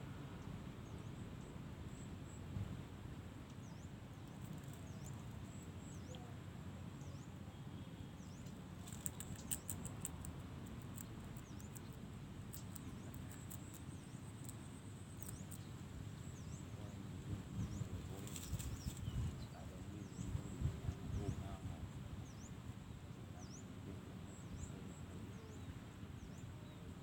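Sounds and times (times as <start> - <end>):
sharp light clicks: 8.8 - 10.3.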